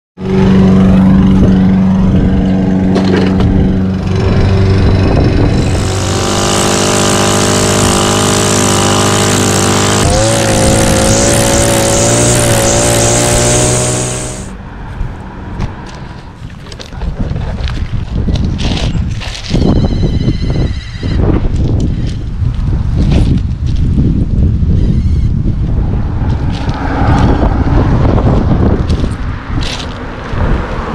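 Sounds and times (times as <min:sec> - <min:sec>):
string trimmer engine running: 0:02.9 - 0:14.6
trimmer line cutting grass: 0:02.9 - 0:14.6.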